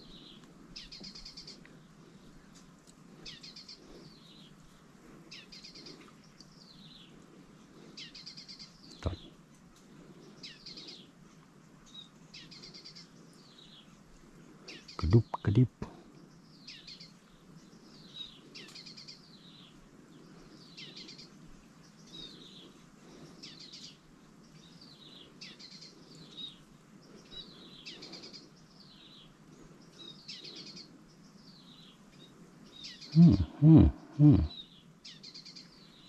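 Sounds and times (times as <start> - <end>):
bird chirping: 14.7 - 36.0
loud short low sounds: 33.2 - 34.5.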